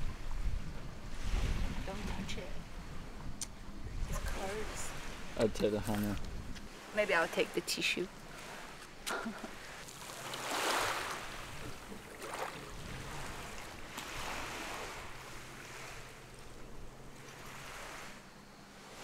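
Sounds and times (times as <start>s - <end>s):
waves washing onto pebbles: 9.6s - 16.3s.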